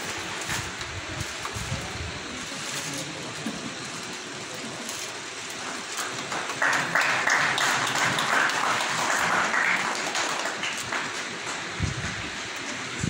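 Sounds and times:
group of people applauding: 5.3s - 13.0s.

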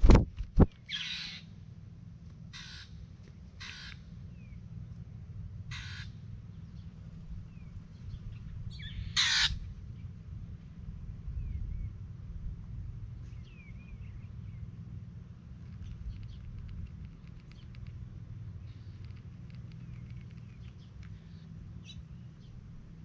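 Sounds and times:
steady low rumble: 0.0s - 23.0s
crow cawing: 1.0s - 1.4s, 2.5s - 3.0s, 3.6s - 4.0s, 5.7s - 6.2s, 9.0s - 9.6s
faint bird chirps: 15.6s - 17.9s.

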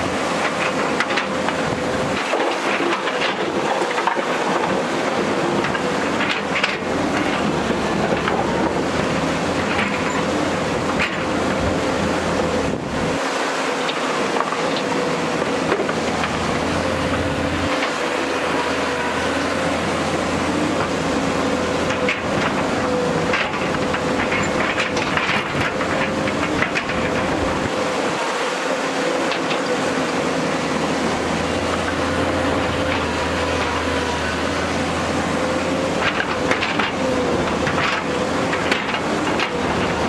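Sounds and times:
excavator engine whine: 0.0s - 40.0s.

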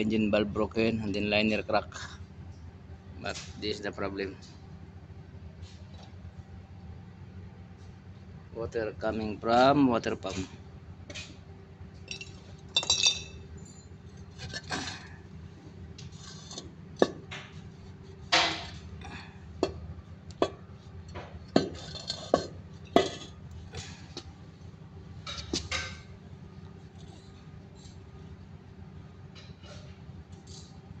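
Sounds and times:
steady low hum: 0.0s - 31.0s
metal parts clinking: 12.1s - 14.7s
metal scraping clatter: 21.6s - 23.9s.

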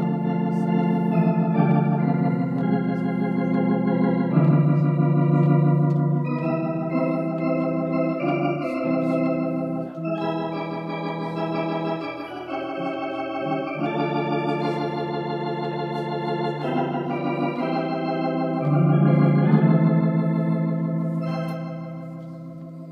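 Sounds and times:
electronic organ chords: 0.0s - 22.9s.

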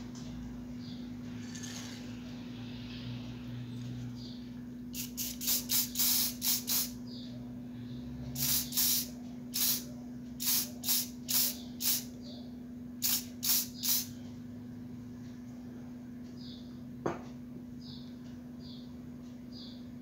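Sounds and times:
steady low hum: 0.0s - 20.0s
aerosol spray can hissing: 5.0s - 7.0s, 8.4s - 12.1s, 13.0s - 14.1s.

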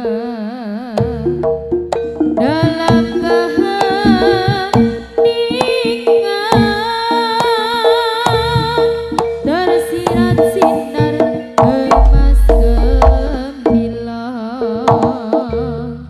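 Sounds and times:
wavering melody: 0.0s - 16.0s
hand drum strokes: 1.0s - 14.1s
deep low boom: 12.0s - 13.4s.

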